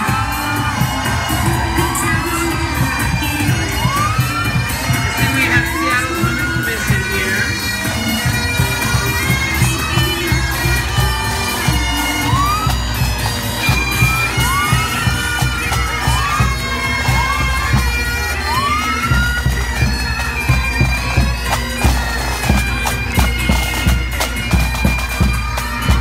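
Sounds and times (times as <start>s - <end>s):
bagpipes playing a tune: 0.0s - 26.0s
drums beating: 0.0s - 26.0s.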